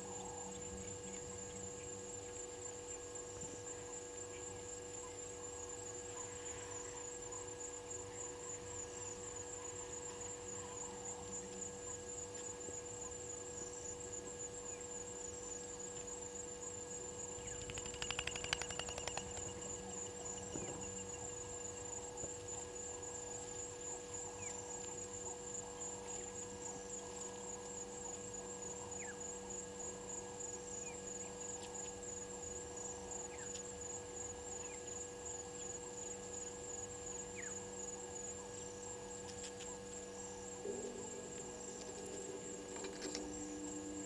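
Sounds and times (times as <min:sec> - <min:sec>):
insect trill: 0:00.0 - 0:44.0.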